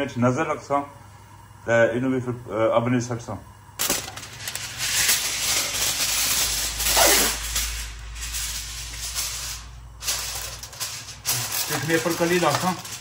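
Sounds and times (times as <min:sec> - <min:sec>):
kitchen foil crinkling: 0:03.8 - 0:13.0.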